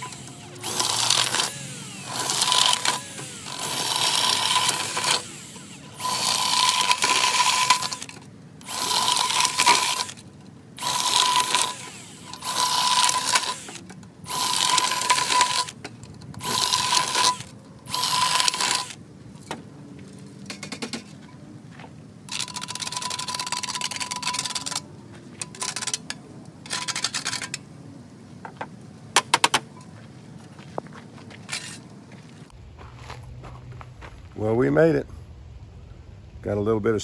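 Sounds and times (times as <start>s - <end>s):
cordless drill boring through steel: 0.0s - 10.2s, 10.8s - 15.8s, 16.4s - 19.0s.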